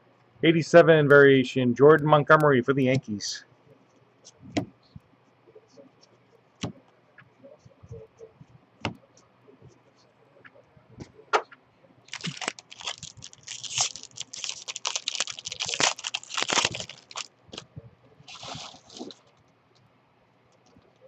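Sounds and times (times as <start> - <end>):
foil wrapper crinkling: 12.1 - 17.6, 18.3 - 19.4.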